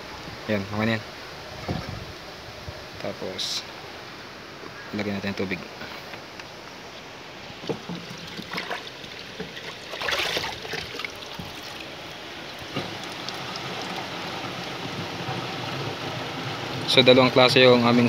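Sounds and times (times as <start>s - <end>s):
water sloshing in bucket: 7.6s - 16.1s
water pouring into metal tank: 7.8s - 16.8s.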